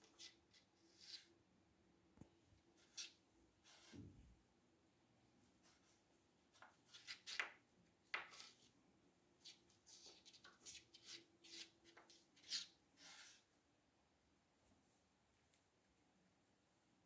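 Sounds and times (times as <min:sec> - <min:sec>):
cat claws scraping: 0:02.8 - 0:04.0, 0:09.4 - 0:13.5.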